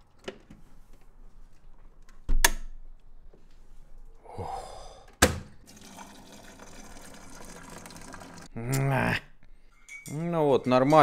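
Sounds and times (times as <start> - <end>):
liquid pouring into cup: 5.6 - 8.5.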